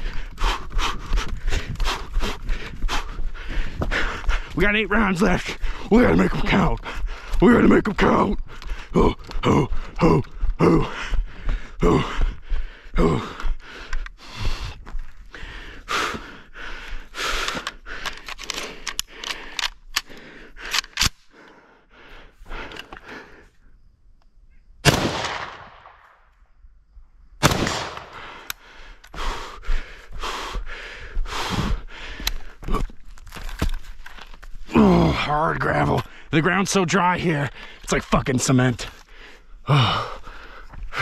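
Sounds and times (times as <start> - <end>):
heavy breathing: 0.0 - 7.5, 8.4 - 23.9, 27.8 - 36.4, 37.0 - 41.0
rifle shots: 24.8 - 26.0, 27.4 - 28.4
shot echo ringing: 24.8 - 26.2, 27.4 - 28.3.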